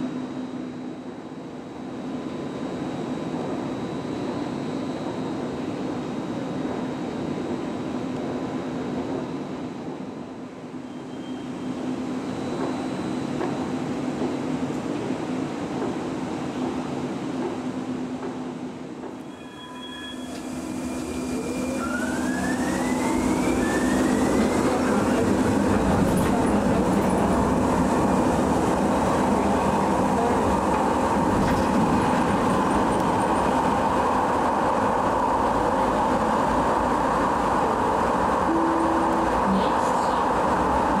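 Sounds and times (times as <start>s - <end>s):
train wheels on rail: 5.0s - 41.0s
brief steady tone: 10.8s - 13.2s, 19.2s - 26.5s, 38.5s - 41.0s
train motor whine rising: 19.1s - 41.0s.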